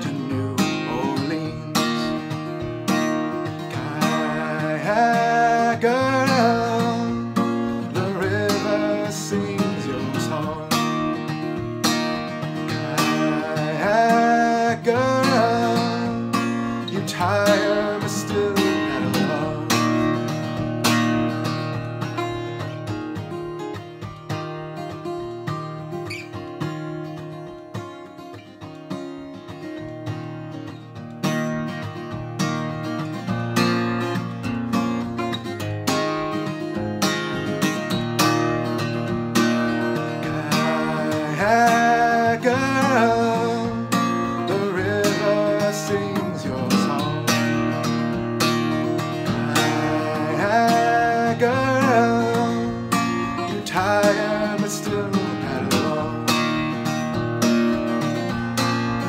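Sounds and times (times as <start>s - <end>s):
man singing: 0.0s - 2.6s, 3.3s - 20.6s, 39.6s - 57.1s
acoustic guitar strumming: 0.0s - 59.0s.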